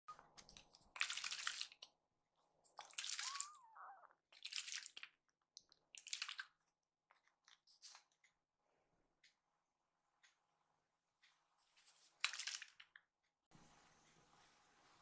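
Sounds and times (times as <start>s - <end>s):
kitten mewing: 3.1s - 4.2s.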